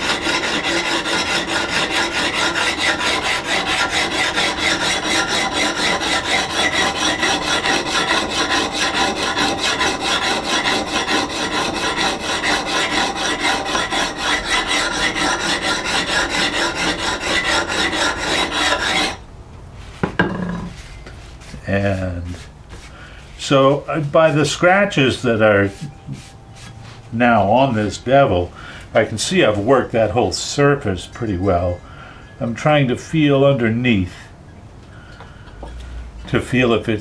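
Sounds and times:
sharpening plate rasping on steel: 0:00.0 - 0:19.2.

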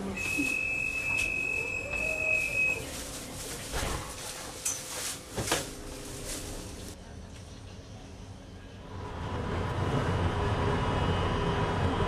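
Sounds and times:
tram low running hum: 0:00.0 - 0:12.0
tram electronic beep: 0:00.1 - 0:02.9.

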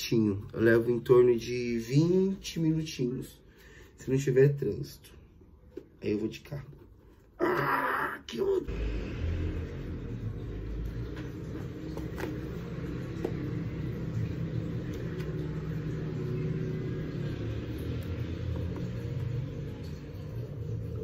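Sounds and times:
low rumble: 0:08.7 - 0:21.0.

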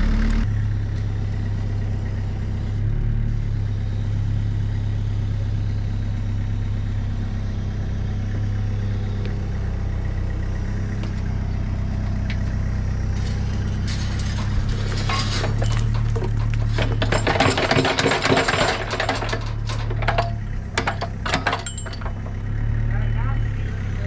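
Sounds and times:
diesel engine running: 0:00.0 - 0:24.0
bucket dumping dirt and stones: 0:13.1 - 0:22.3.

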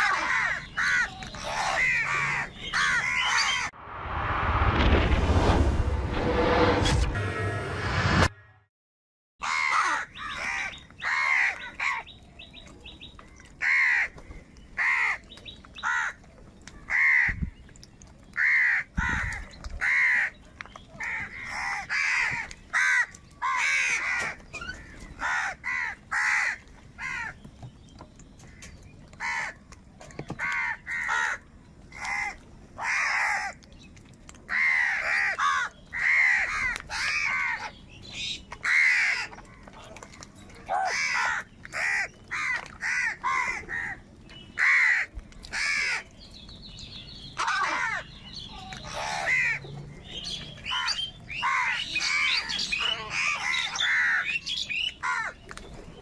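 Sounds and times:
crows cawing: 0:00.0 - 0:03.7, 0:09.4 - 0:12.1, 0:13.6 - 0:14.2, 0:14.8 - 0:15.2, 0:15.8 - 0:16.2, 0:16.9 - 0:17.4, 0:18.4 - 0:20.4, 0:21.0 - 0:27.4, 0:29.2 - 0:29.6, 0:30.4 - 0:33.6, 0:34.5 - 0:37.8, 0:38.6 - 0:39.6, 0:40.8 - 0:44.0, 0:44.6 - 0:46.1, 0:47.4 - 0:48.1, 0:48.8 - 0:49.6, 0:50.7 - 0:54.4, 0:55.0 - 0:55.4.

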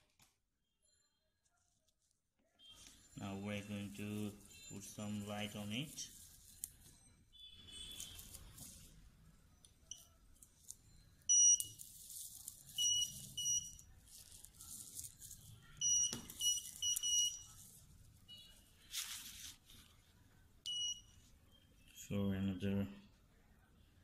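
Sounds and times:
soft rustling of handling: 0:01.2 - 0:07.2, 0:07.9 - 0:09.3, 0:11.6 - 0:20.4
short high-pitched beeps: 0:10.9 - 0:11.8.

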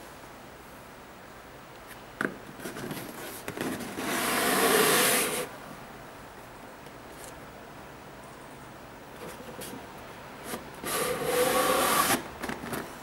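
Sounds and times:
cardboard lid scraping off box: 0:03.6 - 0:05.5, 0:10.5 - 0:12.2.

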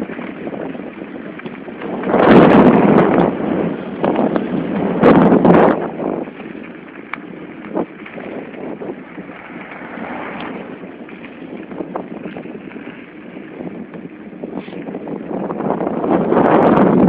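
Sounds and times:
wind buffeting microphone: 0:00.0 - 0:17.0
faint ticks: 0:07.0 - 0:08.3.

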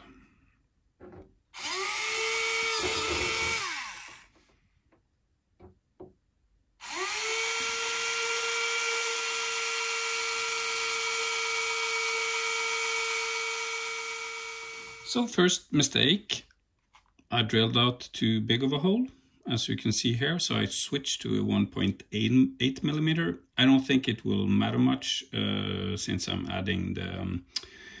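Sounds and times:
small electric drill whining: 0:01.6 - 0:04.4, 0:06.8 - 0:15.2.

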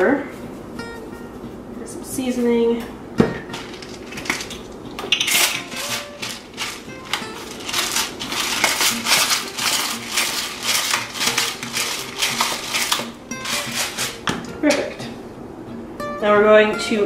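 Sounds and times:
background music: 0:00.0 - 0:17.0
pepper mill grinding: 0:03.5 - 0:14.5.

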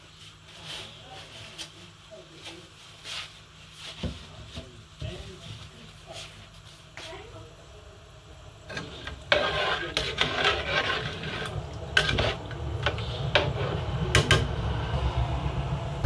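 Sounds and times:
spoon scraping metal pot: 0:08.7 - 0:13.9.

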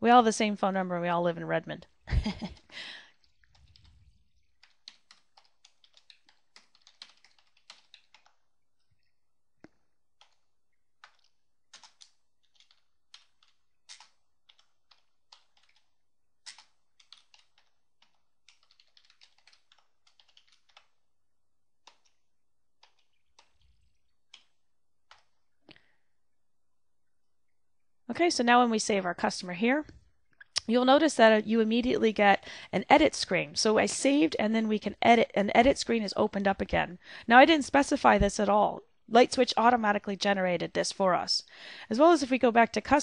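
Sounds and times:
faint keyboard typing: 0:01.8 - 0:21.1, 0:21.8 - 0:25.9.

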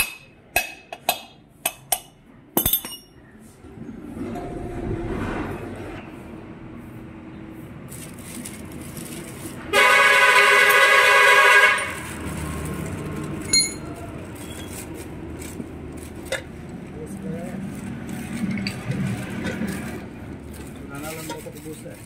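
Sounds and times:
light metallic clink: 0:02.6 - 0:03.2
loud horn blaring: 0:09.7 - 0:12.3.

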